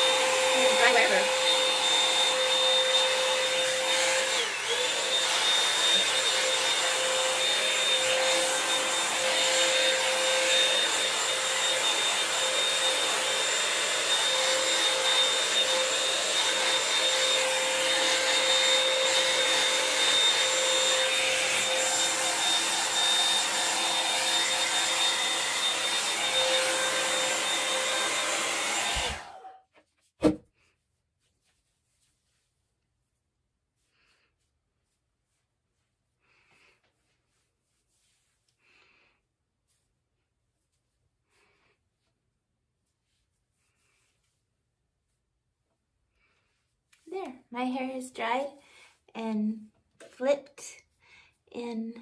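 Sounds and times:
hair dryer blowing: 0.0s - 29.7s.

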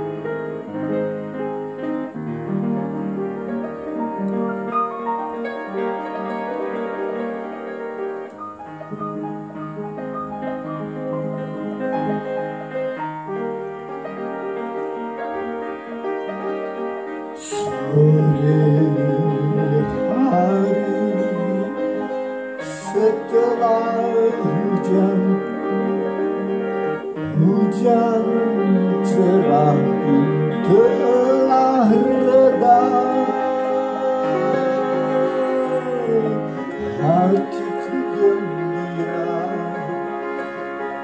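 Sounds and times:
upright piano playing chords: 0.0s - 41.0s
man singing: 17.4s - 26.3s, 27.2s - 41.0s.

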